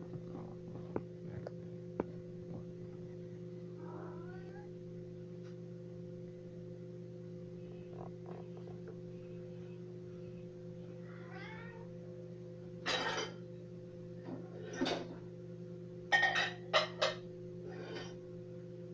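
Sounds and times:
steady low hum: 0:00.0 - 0:18.9
dishes clattering against rack: 0:16.1 - 0:17.2.

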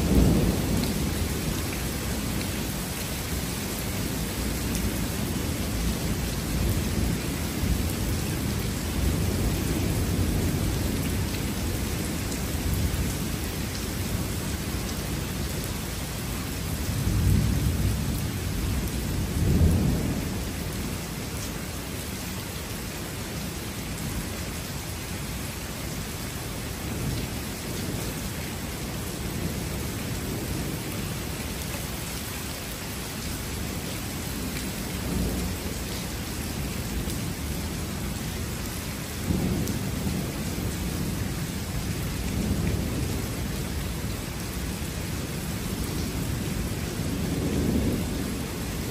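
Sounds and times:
thunder rumbling: 0:00.0 - 0:15.8, 0:16.8 - 0:21.1, 0:39.2 - 0:48.9
steady rain: 0:00.0 - 0:48.9.

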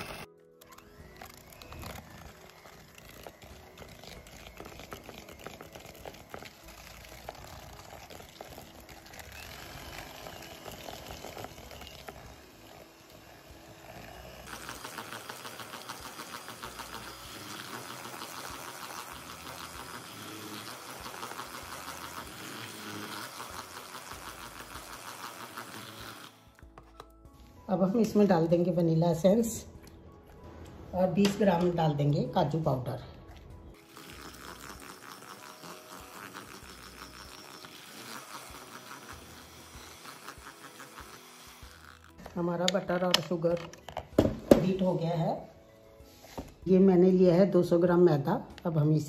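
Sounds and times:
electric hand mixer running: 0:00.0 - 0:26.9, 0:33.7 - 0:44.8.

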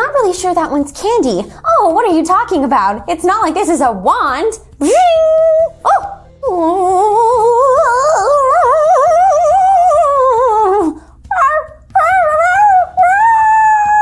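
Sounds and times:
person imitating dog howling: 0:04.9 - 0:14.0.

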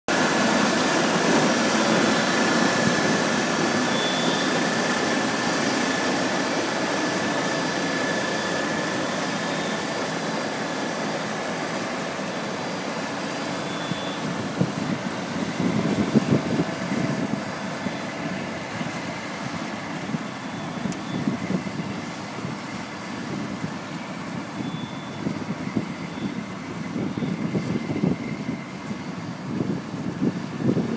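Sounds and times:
harvester machinery drone: 0:00.1 - 0:30.9
thin high whine: 0:00.2 - 0:14.5
wind buffeting microphone: 0:14.2 - 0:30.9.

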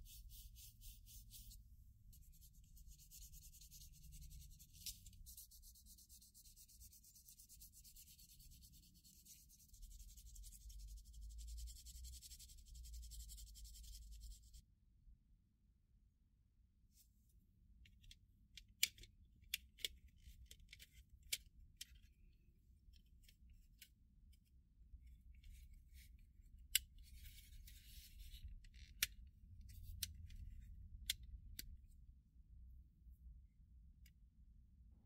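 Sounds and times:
scratchy rubbing: 0:00.0 - 0:14.6.

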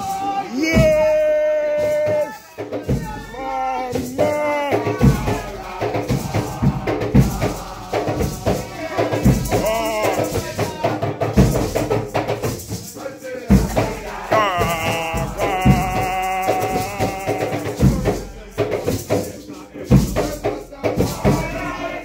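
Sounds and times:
hand drums beating: 0:00.0 - 0:21.8
group chanting: 0:00.0 - 0:22.0.

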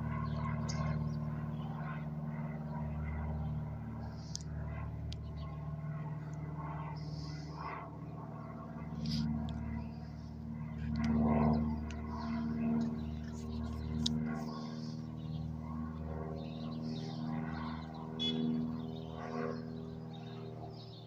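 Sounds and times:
airplane engines humming overhead: 0:00.0 - 0:21.0
bird chirps: 0:16.4 - 0:21.0.

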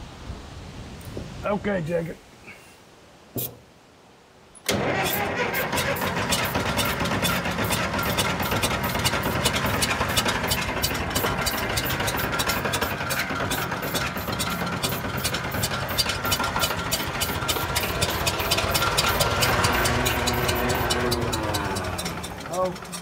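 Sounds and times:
bulldozer diesel engine running: 0:04.7 - 0:23.0.

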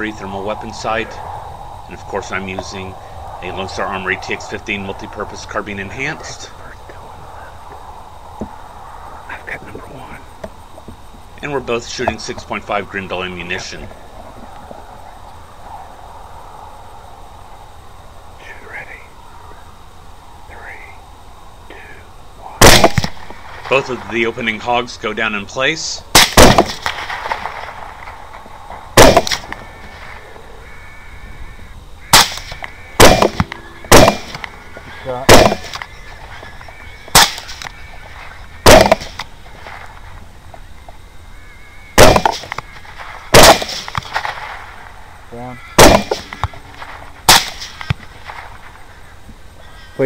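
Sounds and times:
suppressed rifle shots with echo: 0:22.6 - 0:23.8, 0:26.2 - 0:27.8, 0:29.0 - 0:29.6, 0:32.0 - 0:34.5, 0:35.3 - 0:35.8, 0:37.1 - 0:37.7, 0:38.6 - 0:39.2, 0:42.0 - 0:44.6, 0:45.8 - 0:48.4.

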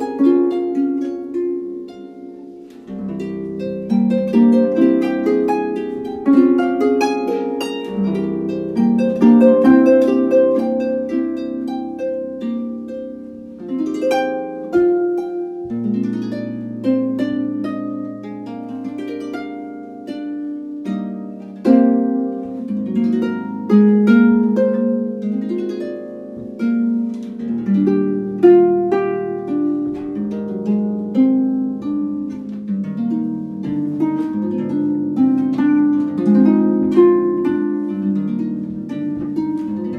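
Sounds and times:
solo harp music: 0:00.0 - 0:39.9.

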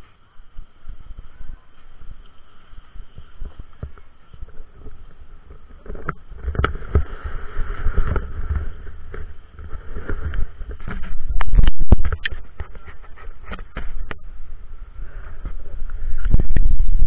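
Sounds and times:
skis sliding over packed snow: 0:00.0 - 0:16.6
wind rumbling on microphone: 0:00.0 - 0:17.0
knocks and scrapes: 0:02.6 - 0:14.3.

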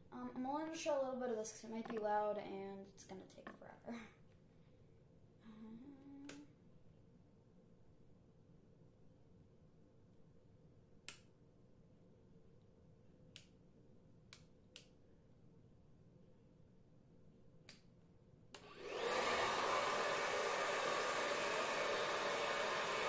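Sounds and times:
hair dryer blowing: 0:18.6 - 0:23.0.

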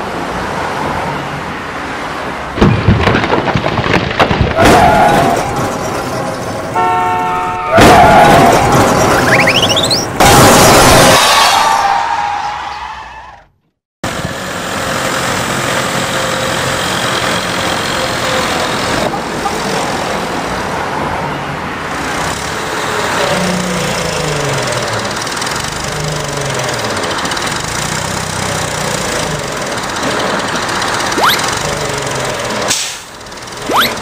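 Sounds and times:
cartoon engine sound effect: 0:31.1 - 0:32.1, 0:33.6 - 0:34.0.

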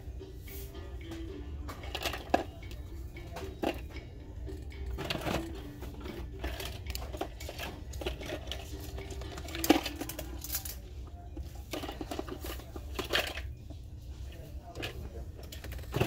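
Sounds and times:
small objects clattering: 0:05.0 - 0:10.8.

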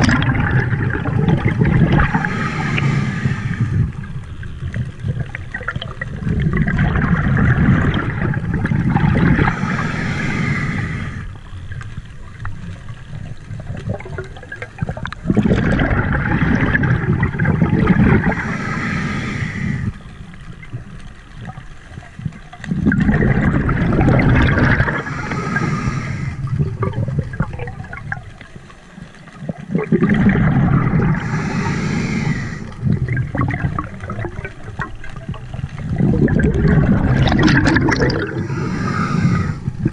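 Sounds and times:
rushes of exhaled bubbles: 0:00.0 - 0:39.9
diver breathing through regulator: 0:01.6 - 0:04.1, 0:09.2 - 0:11.4, 0:18.0 - 0:20.2, 0:24.7 - 0:26.9, 0:30.5 - 0:33.0, 0:38.1 - 0:39.9.

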